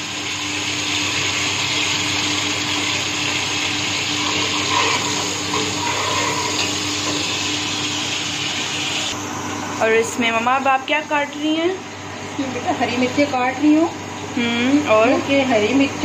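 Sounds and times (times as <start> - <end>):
onions sizzling in oil: 0.0 - 9.2.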